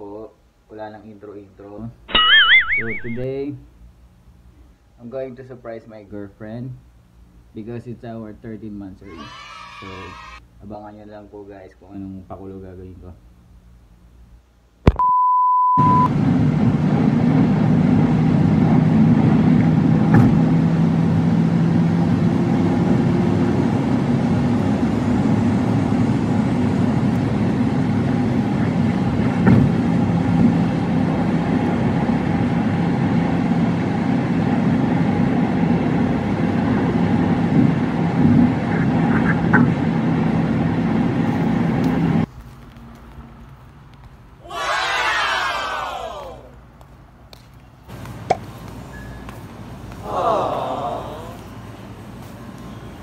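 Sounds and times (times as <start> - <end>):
car road and engine noise: 16.1 - 44.4.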